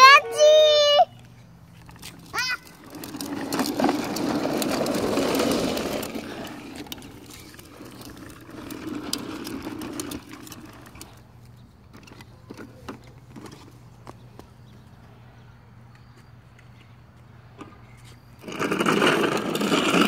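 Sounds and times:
high voice: 0:00.0 - 0:01.2, 0:02.3 - 0:02.8
plastic toy wheels rattling on concrete: 0:01.7 - 0:13.8, 0:17.6 - 0:20.0.

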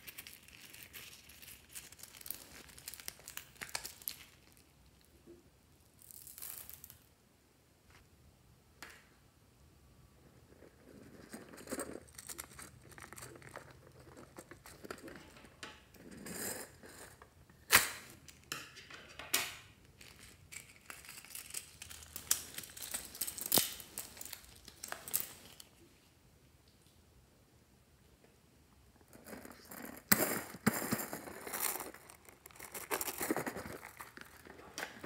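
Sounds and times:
balloon squeezed and crinkling: 0:00.0 - 0:04.7, 0:29.0 - 0:35.0.

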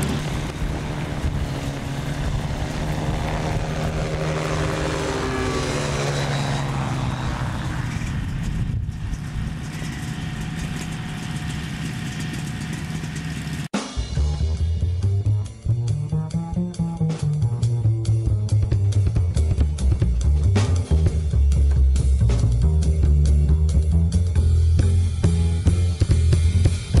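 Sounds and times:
light aircraft engine droning: 0:00.0 - 0:13.7
music: 0:13.7 - 0:27.0.

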